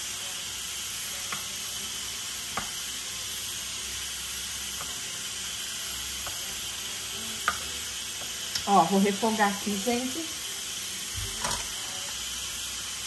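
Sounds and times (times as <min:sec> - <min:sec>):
steam hissing from pot: 0:00.0 - 0:13.0.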